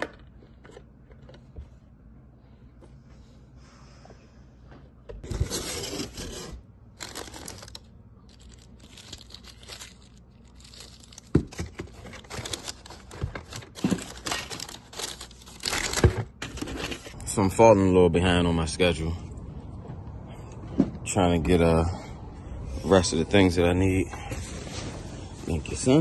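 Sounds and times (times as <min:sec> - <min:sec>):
paper and cardboard rustling: 0:05.2 - 0:17.2
sharp clicks of packages: 0:07.0 - 0:16.7.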